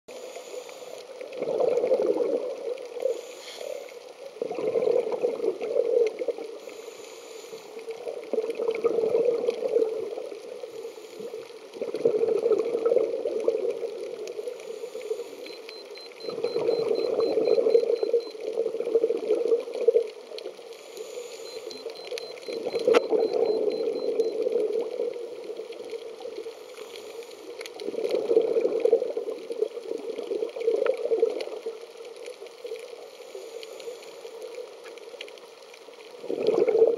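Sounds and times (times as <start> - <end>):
bubbles gurgling underwater: 1.2 - 3.0, 4.4 - 6.6, 8.0 - 10.5, 11.7 - 14.5, 16.1 - 20.4, 21.9 - 26.5, 27.8 - 31.8, 36.2 - 36.9.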